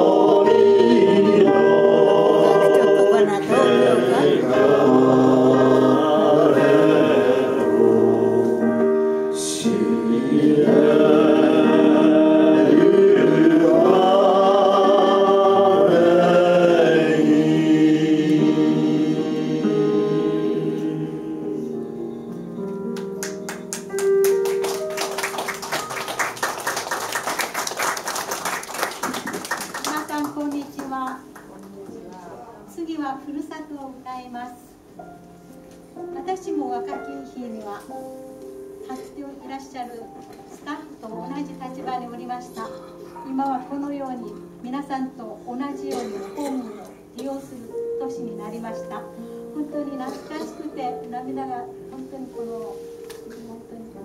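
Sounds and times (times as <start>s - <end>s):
gospel choir singing unaccompanied: 0.0s - 22.8s
audience clapping: 23.0s - 31.9s.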